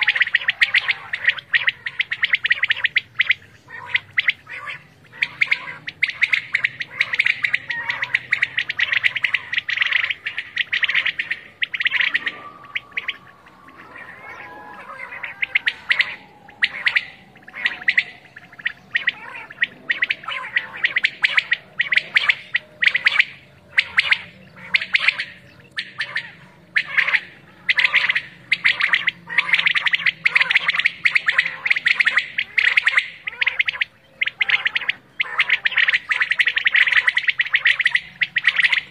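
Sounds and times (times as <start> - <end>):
quails calling: 0.0 - 38.9
faint falling tone: 11.5 - 18.9.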